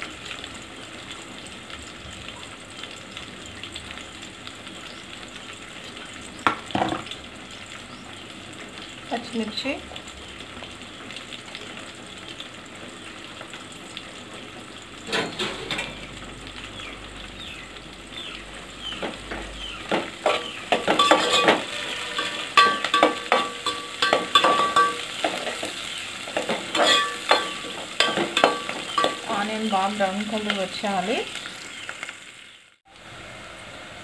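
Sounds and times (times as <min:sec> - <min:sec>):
onions sizzling in oil: 0:00.0 - 0:34.0
spoon scraping and clinking pot: 0:20.2 - 0:25.7, 0:26.4 - 0:29.3.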